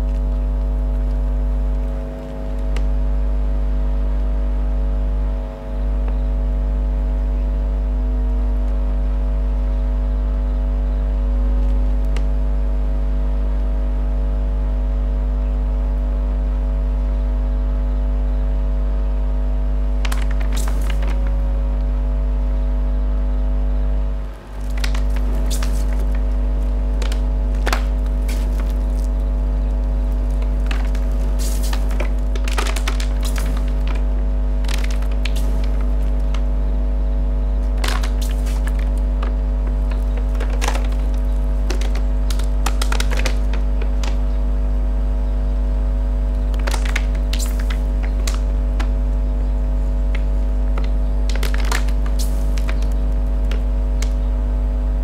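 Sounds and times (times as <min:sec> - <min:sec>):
electric fan motors humming: 0:00.0 - 0:55.0
sharp clicks and cracks: 0:20.0 - 0:21.3, 0:24.5 - 0:36.5, 0:37.6 - 0:44.4, 0:46.3 - 0:49.2, 0:50.0 - 0:54.2.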